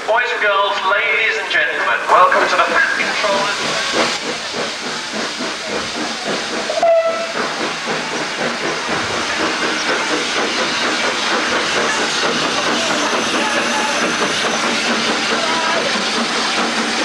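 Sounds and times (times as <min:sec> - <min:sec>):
steam locomotive hissing: 0:00.0 - 0:17.0
steam whistle toot: 0:06.7 - 0:07.4.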